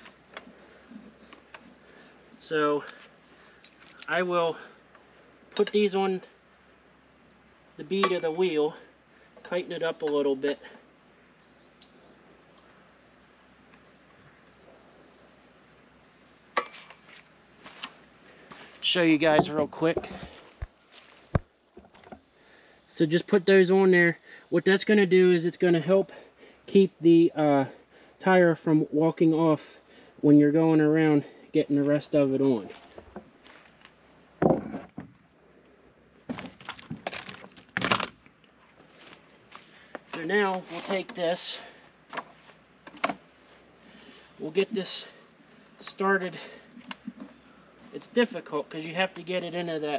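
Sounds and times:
crickets chirping: 0.0s - 49.9s
insect chorus: 0.0s - 49.9s
scuffs and knocks of handling: 36.2s - 41.3s.

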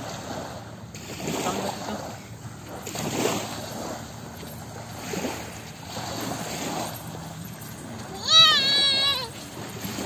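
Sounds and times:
small waves lapping on shore: 0.0s - 10.0s
wind on microphone: 2.7s - 10.0s.

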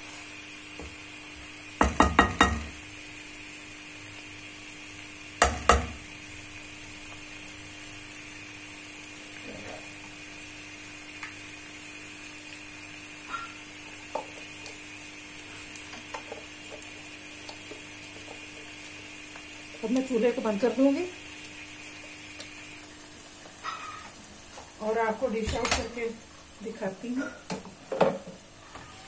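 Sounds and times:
curry sizzling in a pan: 0.0s - 29.0s.

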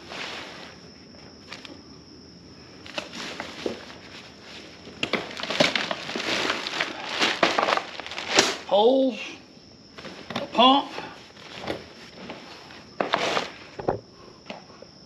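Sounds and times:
plastic wrapping crinkling: 2.8s - 8.7s.

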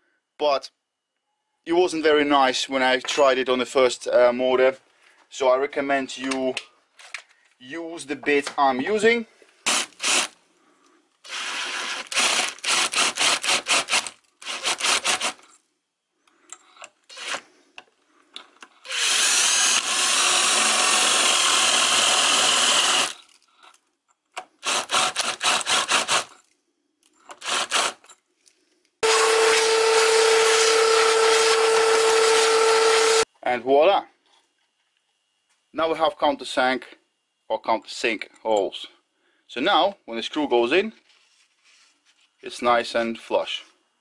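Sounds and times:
power drill countersinking aluminium: 9.7s - 10.4s, 11.2s - 15.4s, 17.1s - 17.4s, 18.8s - 23.4s, 24.6s - 26.4s, 27.3s - 28.1s, 29.0s - 33.2s.

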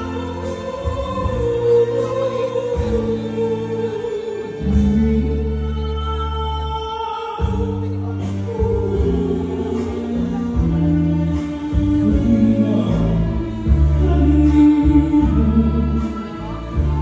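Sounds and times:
instrumental accompaniment: 0.0s - 17.0s
woman singing: 0.0s - 17.0s.

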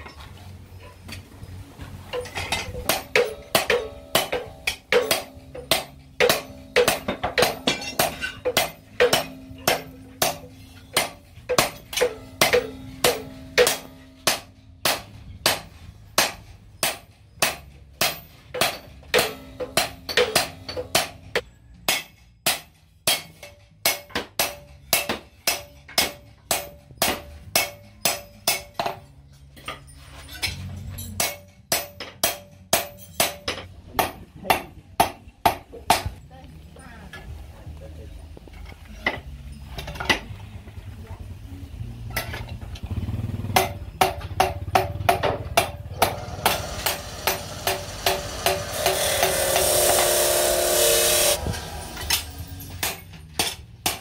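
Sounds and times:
hammer ringing on anvil: 2.2s - 15.6s, 16.2s - 29.0s, 43.6s - 54.0s.

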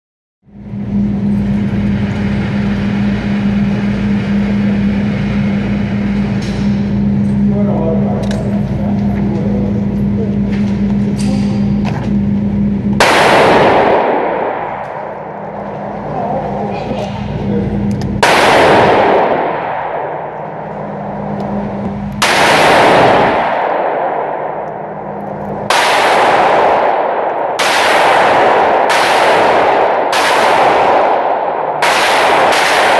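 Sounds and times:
ventilation fans running: 0.5s - 32.9s
gunshots echoing indoors: 9.6s - 16.1s, 17.6s - 32.9s.

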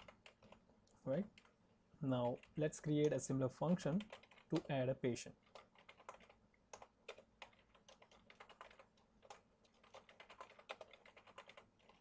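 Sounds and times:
keyboard typing: 0.0s - 0.6s, 3.9s - 4.7s, 5.4s - 12.0s.

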